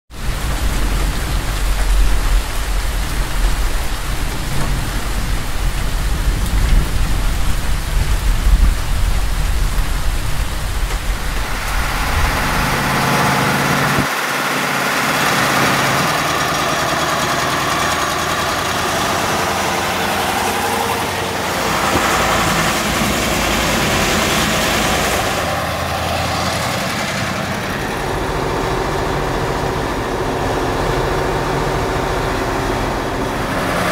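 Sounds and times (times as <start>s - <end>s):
diesel truck engine rumbling: 0.1s - 33.9s
tyres hissing on wet road: 0.1s - 33.9s.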